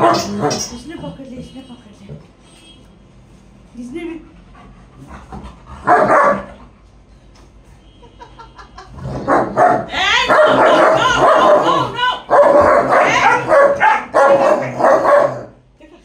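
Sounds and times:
dogs growling and barking: 0.0s - 0.8s, 4.9s - 6.7s, 8.9s - 15.6s.

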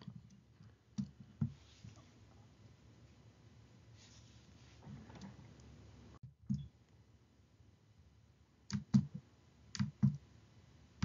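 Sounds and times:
computer mouse clicks: 8.7s - 10.2s.

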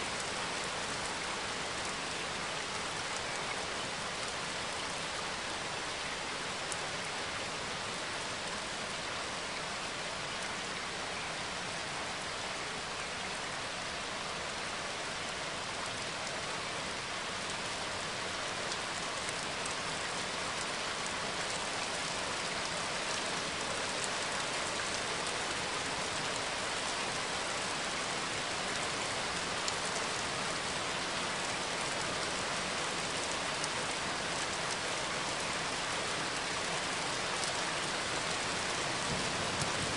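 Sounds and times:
steady rain hiss: 0.0s - 39.9s.

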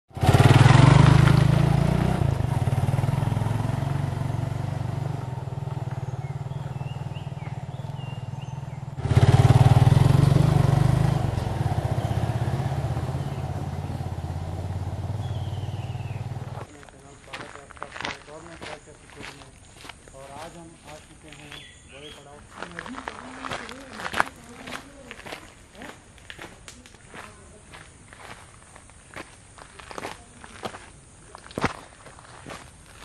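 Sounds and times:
motorcycle engine running: 0.1s - 16.7s.

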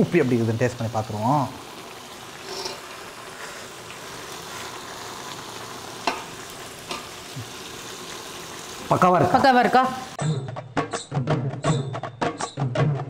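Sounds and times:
masala sizzling in a pan: 0.0s - 10.2s
stirring in a pan: 2.2s - 9.6s.

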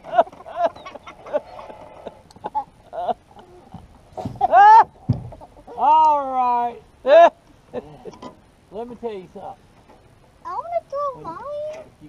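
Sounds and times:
people's excited cries: 4.4s - 5.0s.

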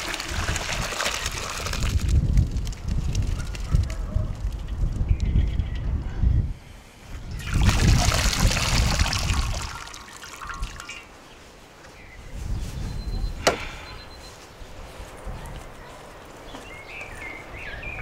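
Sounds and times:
liquid pouring and trickling: 0.0s - 2.8s, 7.3s - 11.1s.

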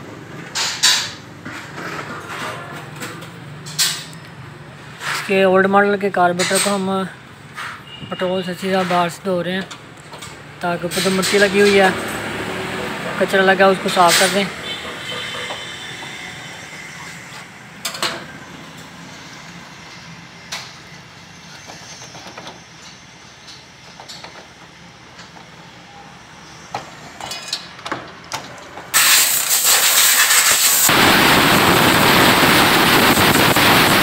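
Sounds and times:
air blow gun hissing: 28.9s - 34.0s.

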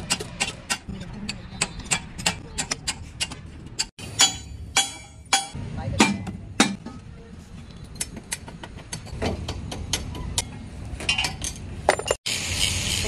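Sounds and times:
loud steady hiss: 12.3s - 13.0s.

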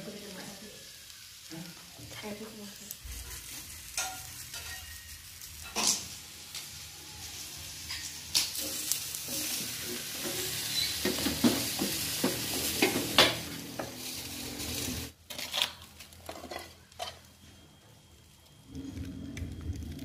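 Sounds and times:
fish sizzling on a griddle: 0.0s - 15.2s.

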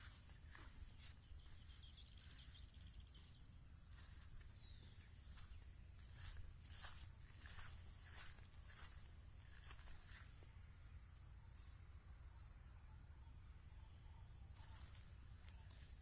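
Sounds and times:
footsteps in grass: 0.0s - 10.5s
insects chirring: 0.0s - 16.0s.

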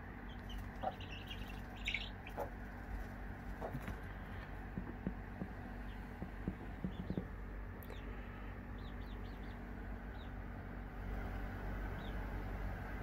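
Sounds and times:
baby chicks peeping: 0.1s - 12.7s
soft taps: 4.7s - 7.4s.

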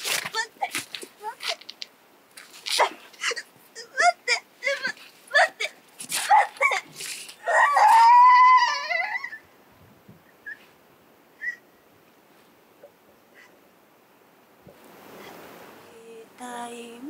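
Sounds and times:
person sobbing and wailing: 2.8s - 5.8s.

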